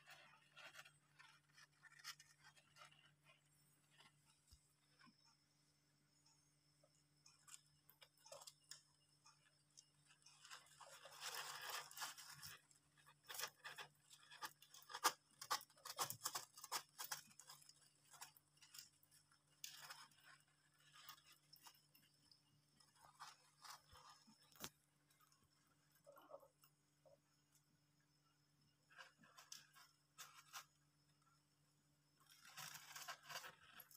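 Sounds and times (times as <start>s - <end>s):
hamsters rustling in wood shavings: 0.0s - 5.2s, 7.0s - 33.9s
faint steady hum: 0.0s - 33.9s
small crunches and sharp clicks: 7.2s - 27.7s, 28.9s - 31.0s.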